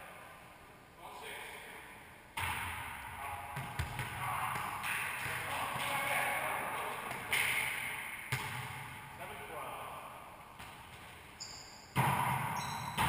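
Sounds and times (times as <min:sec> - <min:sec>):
ball slamming off court walls: 0:11.9 - 0:13.0.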